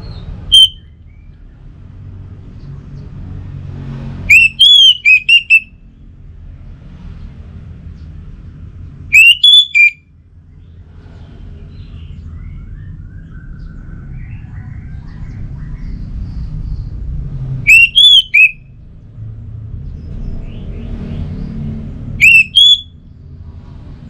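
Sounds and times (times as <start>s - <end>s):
bird whistled phrases: 0.1s - 1.0s, 4.3s - 5.7s, 9.1s - 10.0s, 17.7s - 18.6s, 22.2s - 22.9s
soft bird warbling: 4.3s - 5.7s, 9.1s - 10.0s, 17.7s - 18.6s, 22.2s - 22.8s.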